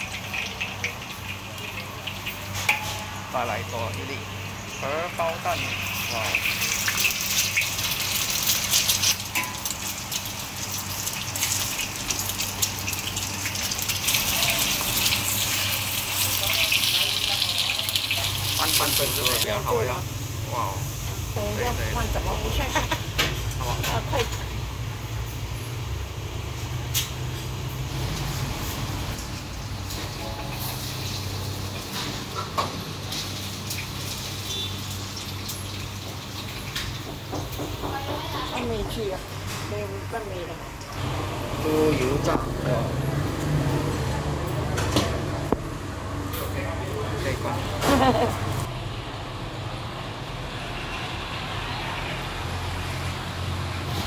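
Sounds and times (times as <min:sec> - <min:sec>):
low hum of cafe: 0:00.0 - 0:34.8, 0:35.7 - 0:50.9
egg sizzling in hot oil: 0:00.0 - 0:39.5.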